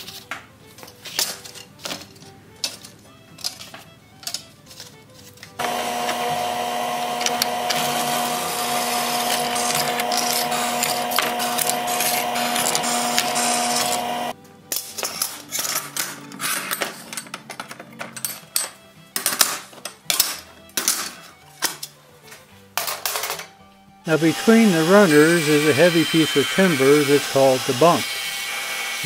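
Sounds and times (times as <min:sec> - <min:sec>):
drill press drilling metal: 0:05.6 - 0:14.3, 0:24.1 - 0:29.0.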